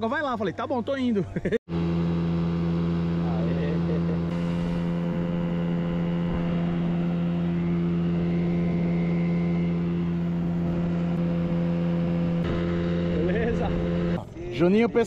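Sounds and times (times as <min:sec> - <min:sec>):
outboard motor drone: 0:01.7 - 0:14.4.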